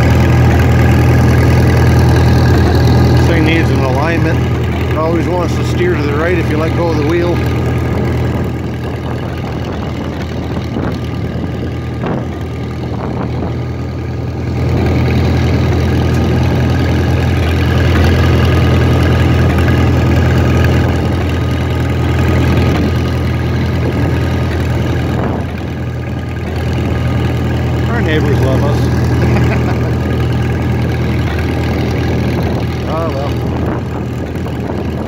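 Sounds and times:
tractor engine running: 0.0s - 35.0s.

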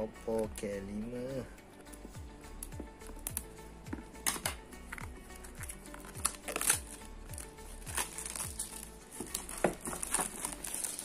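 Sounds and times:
background music with low beat: 0.0s - 11.0s
plastic shrink-wrap crinkling: 5.4s - 11.0s.

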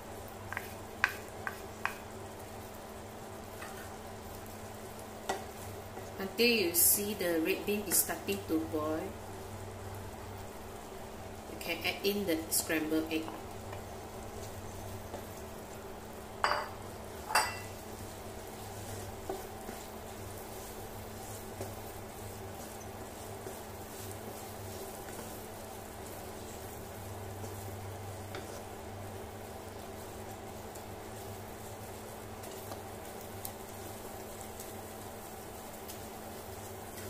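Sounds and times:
cooktop hum: 0.0s - 37.0s
spatula scraping a pan: 27.4s - 28.7s.

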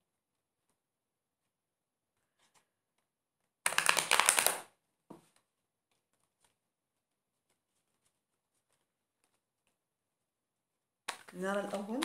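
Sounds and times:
cards being shuffled: 3.4s - 9.8s
cards tapping: 3.7s - 5.2s.

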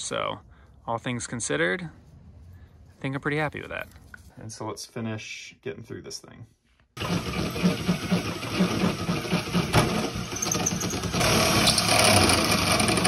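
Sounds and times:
drill bit grinding metal: 7.0s - 13.0s.

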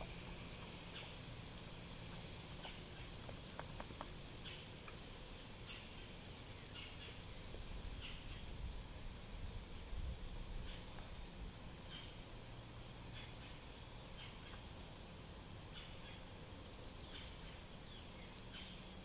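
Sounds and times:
pecking and scratching in wood chips: 2.1s - 8.4s, 15.8s - 19.0s.

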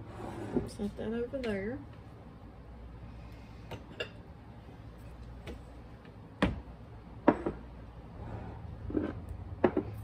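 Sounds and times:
sharp knocks on countertop: 9.6s - 10.0s.

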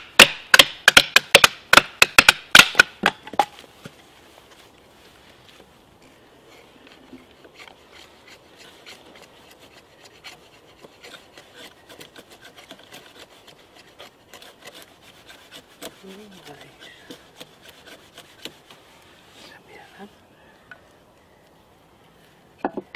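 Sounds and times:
knife scraping wooden sticks: 6.4s - 20.0s.

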